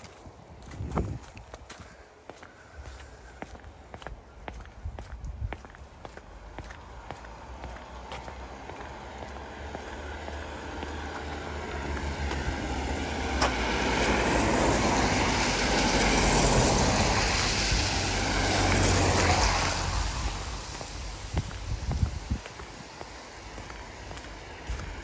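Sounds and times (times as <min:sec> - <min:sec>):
car tyres hissing on wet road: 0:09.0 - 0:25.0.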